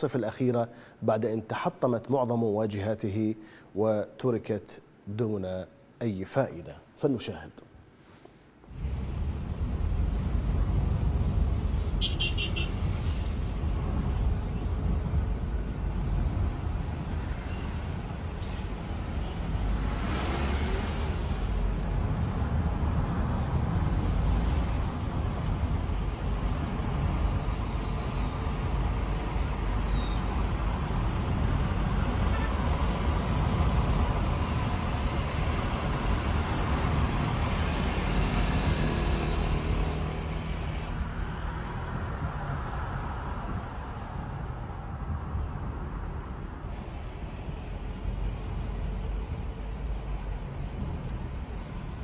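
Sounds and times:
car engine and tyre rumble: 8.0s - 52.0s.

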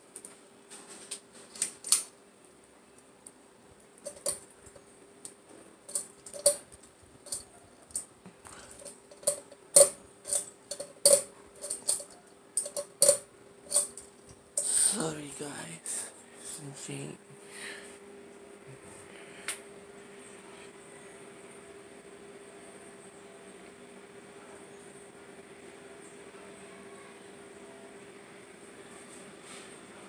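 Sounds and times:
ceiling fan hum: 0.0s - 30.0s
metal rattle: 4.0s - 4.4s, 5.9s - 8.0s, 8.7s - 14.0s
metallic pull chain clicks: 5.9s - 6.6s, 7.3s - 8.1s, 8.8s - 14.0s.

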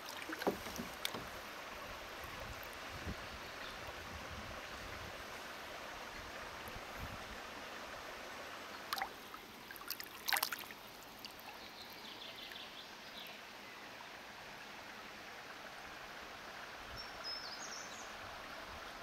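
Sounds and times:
water splashing: 0.0s - 1.5s, 8.8s - 11.6s.

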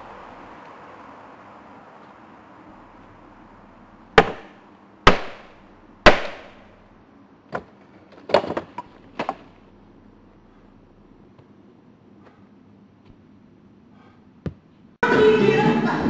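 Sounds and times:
wood clattering: 7.5s - 9.6s.

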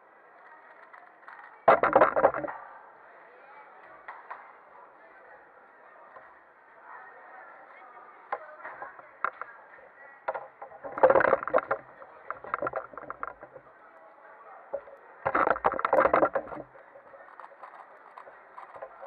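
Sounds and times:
indistinct crowd chatter: 0.0s - 19.0s
plastic clattering and knocking on table: 1.7s - 2.5s, 10.3s - 13.6s, 14.8s - 16.7s.

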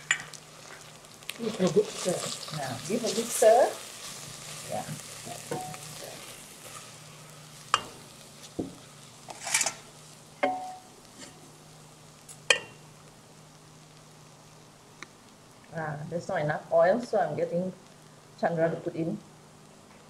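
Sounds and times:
spices sizzling with scraping: 0.0s - 16.4s.

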